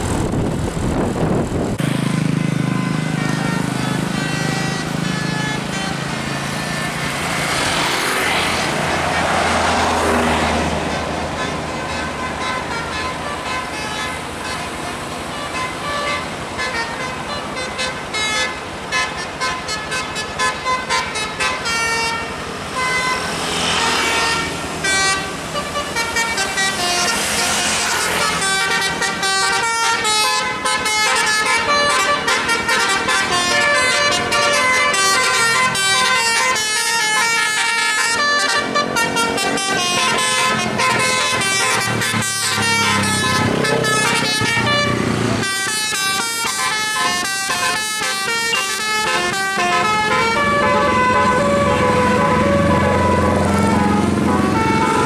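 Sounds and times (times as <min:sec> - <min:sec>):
passing motorcycles and traffic: 0:00.0 - 0:55.0
musical air horn tune: 0:02.2 - 0:55.0.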